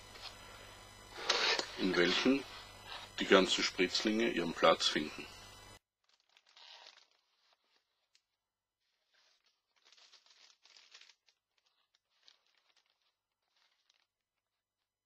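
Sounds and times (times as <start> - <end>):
paper sheets rustling: 6.0 - 8.2, 8.8 - 14.1
plastic bag crinkling: 6.0 - 14.9.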